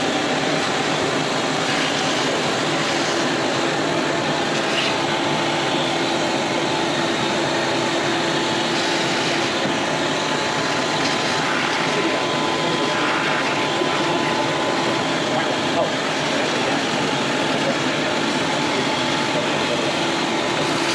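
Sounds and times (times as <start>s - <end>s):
shop vac sucking dust: 0.2s - 15.0s.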